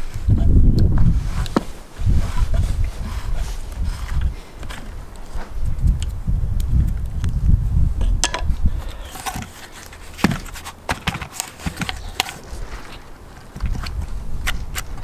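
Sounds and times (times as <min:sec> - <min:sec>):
knocks and clicks of handled wood: 0:08.2 - 0:15.0.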